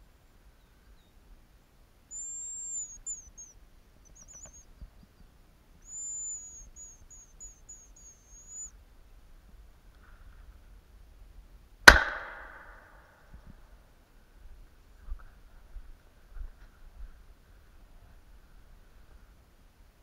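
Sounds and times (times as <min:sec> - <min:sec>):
faint trill: 0:02.1 - 0:04.8, 0:05.8 - 0:08.8
grouse whistle calls: 0:02.1 - 0:08.8.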